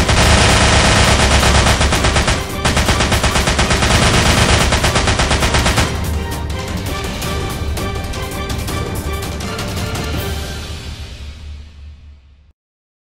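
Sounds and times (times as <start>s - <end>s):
machine-gun fire: 0.0s - 6.4s.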